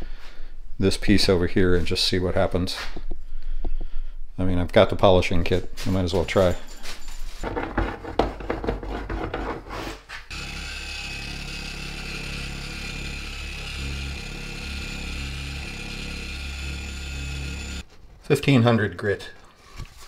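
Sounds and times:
handling knocks and rustles: 5.4 - 10.3
orbital polisher running: 10.3 - 17.8.

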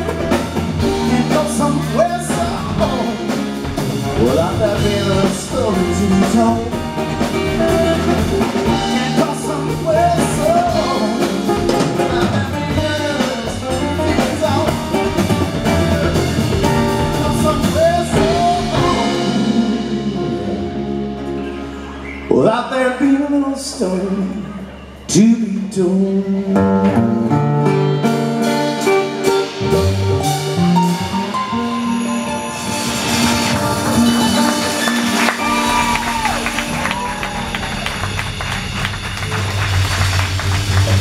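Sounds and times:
man singing: 0.0 - 21.2, 22.3 - 27.1
conga drums: 0.0 - 22.0, 28.0 - 41.0
electric bass: 0.0 - 41.0
acoustic guitars: 25.2 - 37.8.

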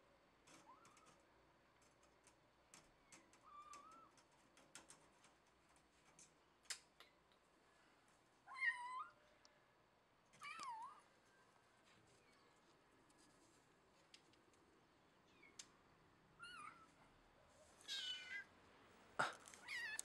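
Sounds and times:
faint clicks: 0.4 - 7.4, 19.3 - 20.0
kitten meowing: 17.8 - 18.5, 19.6 - 20.0.

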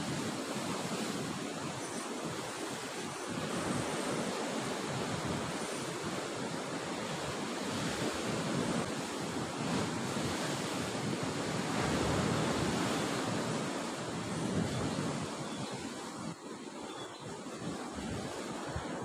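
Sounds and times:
wind on microphone: 0.0 - 19.0.

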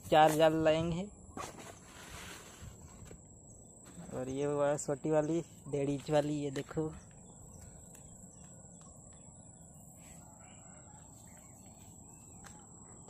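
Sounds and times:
faint bird calls: 6.9 - 13.0.

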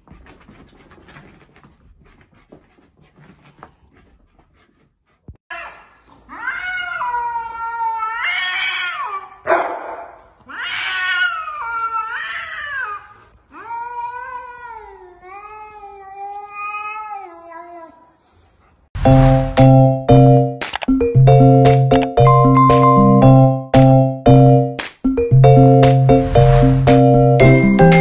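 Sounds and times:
cats yowling: 6.3 - 9.4, 10.5 - 15.4.

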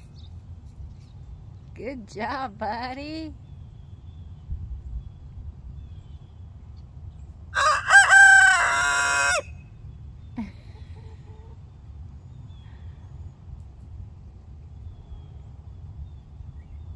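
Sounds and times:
young rooster crowing: 7.5 - 9.5.

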